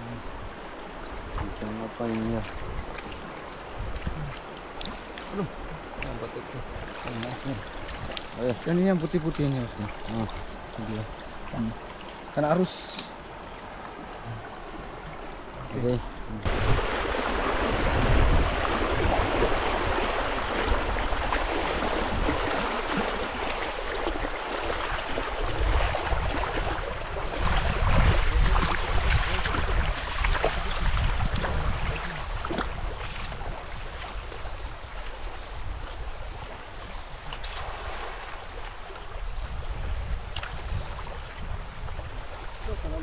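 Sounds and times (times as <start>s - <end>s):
wind buffeting microphone: 0.0s - 4.4s, 13.6s - 43.0s
river water flowing: 0.0s - 43.0s.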